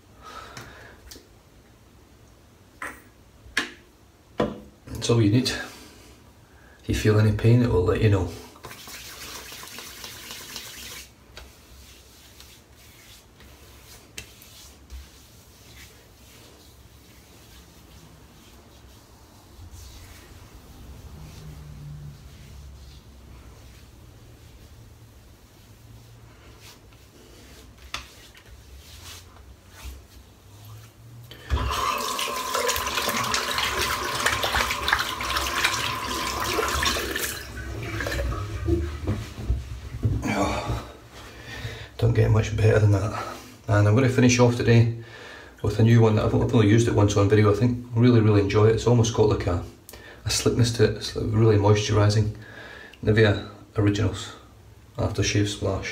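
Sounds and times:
tap water running into sink: 8.6s - 11.1s, 31.5s - 39.2s
hands rubbing gel on scalp: 8.6s - 31.1s.

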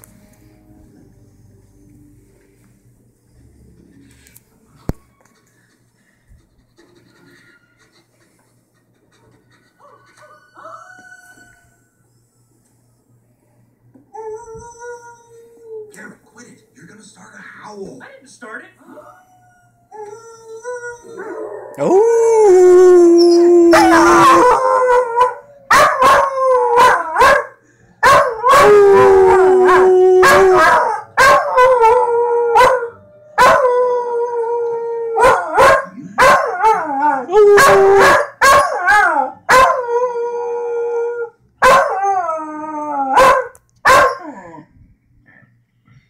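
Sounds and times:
dog howling: 18.8s - 44.7s
dog barking: 26.8s - 28.4s, 35.2s - 36.5s, 37.6s - 38.8s, 41.6s - 41.9s, 43.2s - 44.2s.

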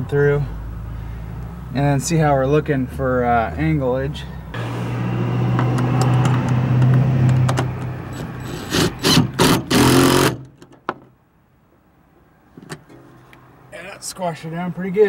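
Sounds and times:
impact driver hammering: 8.5s - 10.5s.

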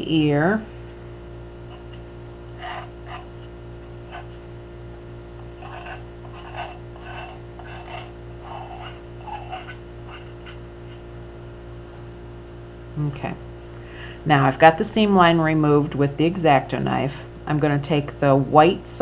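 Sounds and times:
knife blade scraping porcelain: 1.7s - 4.5s, 5.4s - 11.0s.

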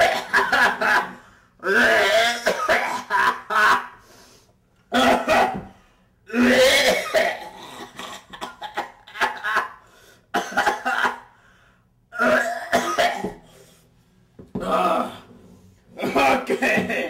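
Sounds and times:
man coughing: 0.0s - 4.0s, 4.9s - 11.4s, 12.2s - 13.4s, 15.9s - 17.0s.

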